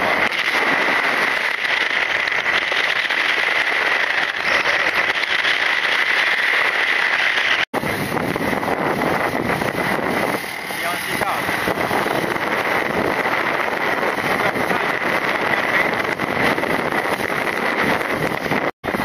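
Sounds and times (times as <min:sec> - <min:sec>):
wind and road noise: 0:00.0 - 0:19.0
high-pitched tone: 0:04.4 - 0:05.5.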